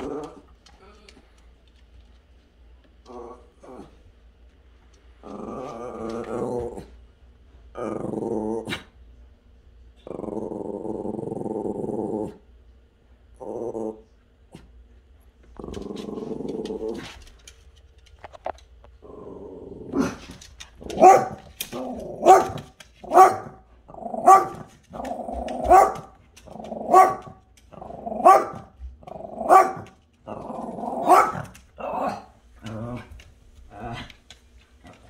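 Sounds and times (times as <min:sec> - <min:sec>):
small dog growling: 0:00.0 - 0:01.2, 0:03.0 - 0:04.0, 0:05.2 - 0:07.0, 0:07.7 - 0:09.0, 0:10.0 - 0:12.4, 0:13.4 - 0:14.7, 0:15.5 - 0:17.3, 0:19.0 - 0:22.5, 0:23.9 - 0:35.0
dog barking: 0:20.9 - 0:21.4, 0:22.2 - 0:23.6, 0:24.2 - 0:24.7, 0:25.6 - 0:26.1, 0:26.9 - 0:27.4, 0:28.2 - 0:28.7, 0:29.4 - 0:29.9, 0:31.0 - 0:31.5.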